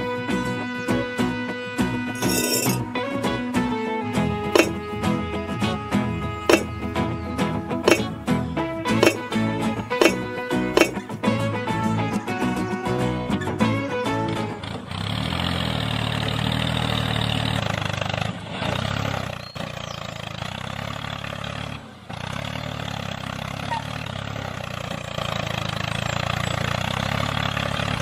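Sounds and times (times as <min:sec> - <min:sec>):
small engine idling: 0:14.2 - 0:28.0.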